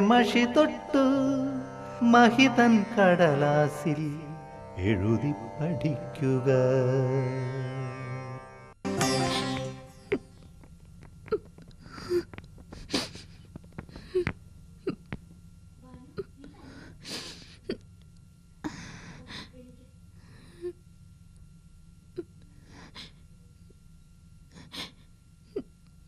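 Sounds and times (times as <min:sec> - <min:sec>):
music chord: 0:07.5 - 0:10.4
person gasping: 0:18.6 - 0:19.6.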